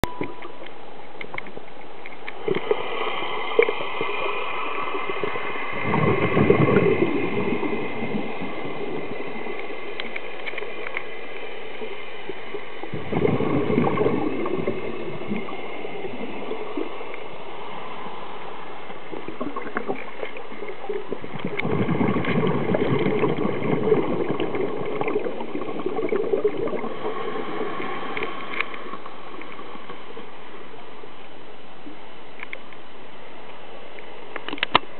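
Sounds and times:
faint clicks: 0.0 - 2.7, 9.5 - 12.0, 28.1 - 30.2, 31.8 - 32.8, 33.5 - 34.9
muffled underwater wash: 0.0 - 34.9
underwater water surges: 0.0 - 34.9.

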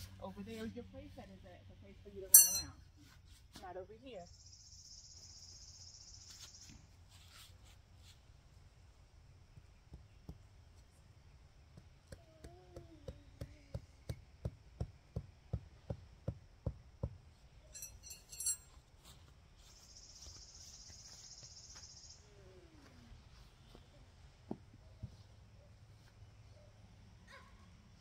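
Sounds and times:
rattle of clinks: 2.3 - 2.7, 17.8 - 18.8.

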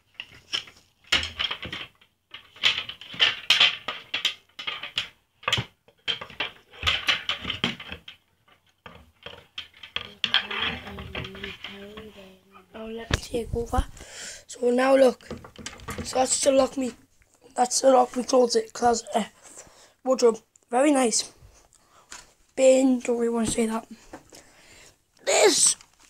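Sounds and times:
coat hangers rattling and clinking: 0.1 - 12.1.

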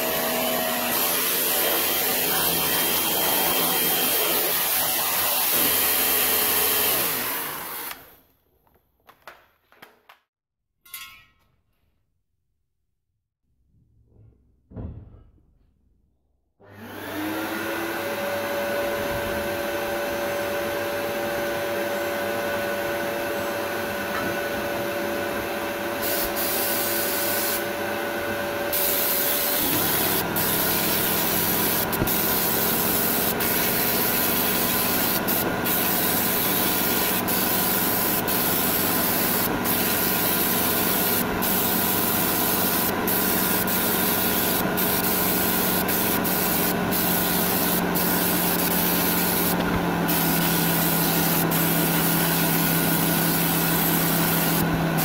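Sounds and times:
blast gun hissing: 28.8 - 54.6.

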